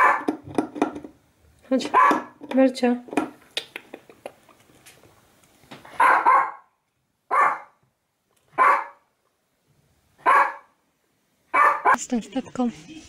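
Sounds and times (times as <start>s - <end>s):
dog barking: 0.0s - 0.4s, 1.9s - 2.4s, 6.0s - 6.7s, 7.3s - 7.8s, 8.5s - 9.1s, 10.2s - 10.8s, 11.5s - 12.0s.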